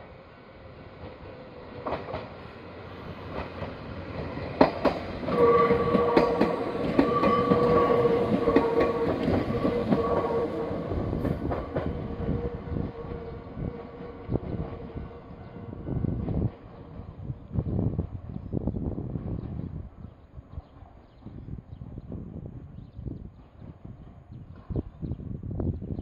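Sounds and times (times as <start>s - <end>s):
train wheels clacking over rail joints: 3.3s - 12.5s.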